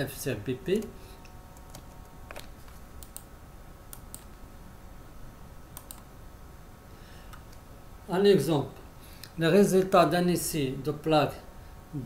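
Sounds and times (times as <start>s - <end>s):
faint steady hum: 0.0s - 12.0s
computer mouse clicks: 1.6s - 3.3s, 3.9s - 4.4s, 5.7s - 6.1s.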